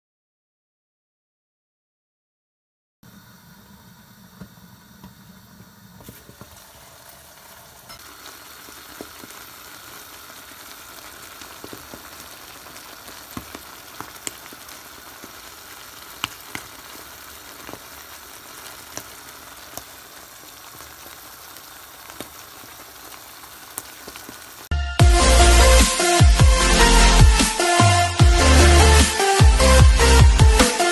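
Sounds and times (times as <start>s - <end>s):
stew sizzling with small pops: 3.3s - 24.7s.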